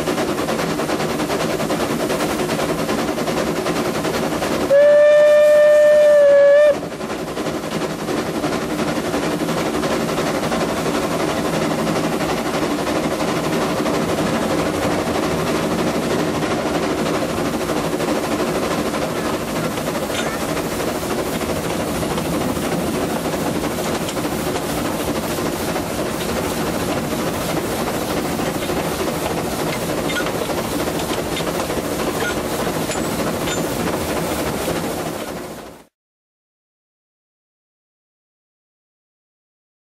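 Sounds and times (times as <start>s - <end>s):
train rolling along track: 0.0s - 35.9s
steam whistle blast: 4.7s - 6.8s.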